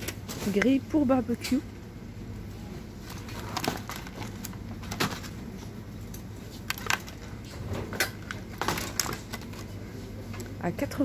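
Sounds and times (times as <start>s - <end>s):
steady low hum: 0.0s - 11.0s
plastic packaging clicking: 6.7s - 7.3s, 8.0s - 9.7s.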